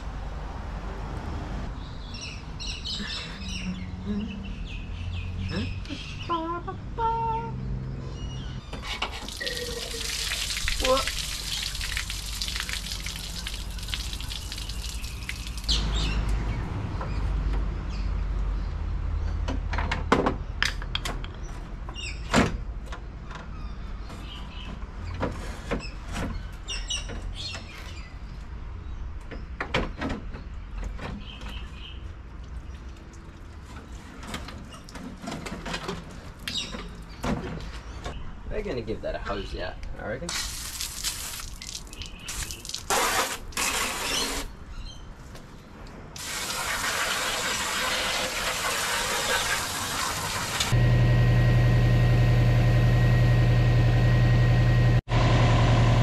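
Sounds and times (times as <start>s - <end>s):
water running from hose: 8.9s - 15.8s, 40.3s - 44.5s, 46.2s - 50.8s.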